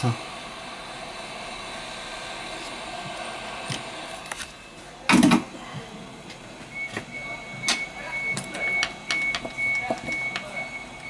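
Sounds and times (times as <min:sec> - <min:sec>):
hot air tool blowing: 0:00.0 - 0:04.8.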